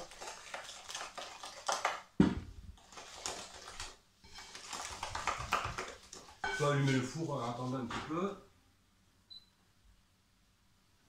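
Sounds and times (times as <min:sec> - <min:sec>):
utensil scraping dough in glass bowl: 0:02.9 - 0:07.2.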